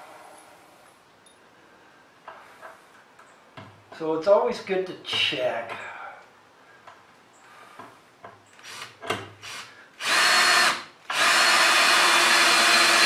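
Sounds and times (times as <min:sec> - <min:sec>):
cordless drill driving screw: 0:08.6 - 0:13.0.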